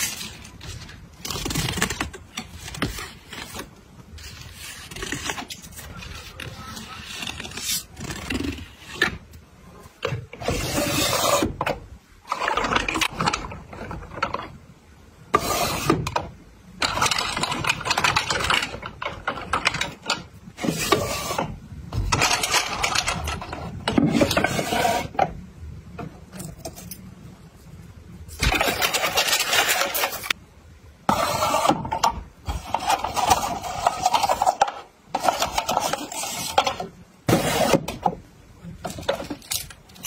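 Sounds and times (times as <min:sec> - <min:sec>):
plastic drawers sliding: 0:00.0 - 0:09.2, 0:10.0 - 0:14.6, 0:15.3 - 0:25.4, 0:28.3 - 0:30.4, 0:31.0 - 0:39.7.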